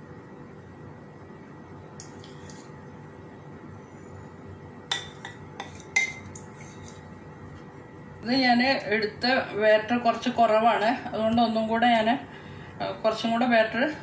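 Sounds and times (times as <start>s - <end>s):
steady low hum: 0.0s - 14.0s
metal spoon clinking and scraping: 2.0s - 2.7s, 4.9s - 7.0s.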